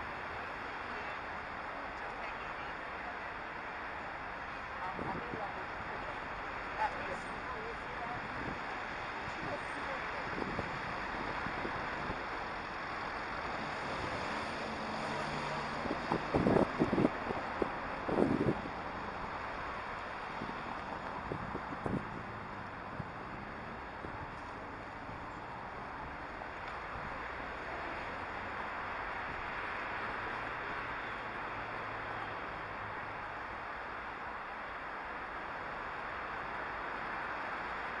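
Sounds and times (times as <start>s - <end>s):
road traffic: 0.0s - 38.0s
wind on microphone: 4.8s - 6.0s, 7.0s - 19.4s, 20.2s - 26.0s.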